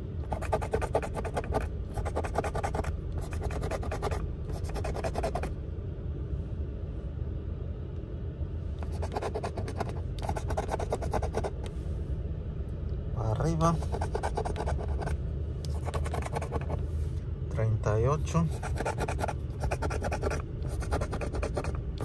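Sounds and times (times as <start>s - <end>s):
low rumble: 0.0s - 22.0s
coin scratching lottery ticket: 0.3s - 5.5s, 8.8s - 11.6s, 13.8s - 15.1s, 15.7s - 16.8s, 18.5s - 21.8s.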